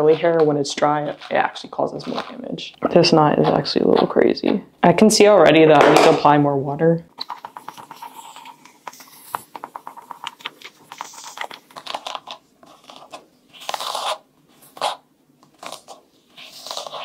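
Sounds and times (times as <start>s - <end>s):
brush crackling through hair: 7.2s - 17.0s.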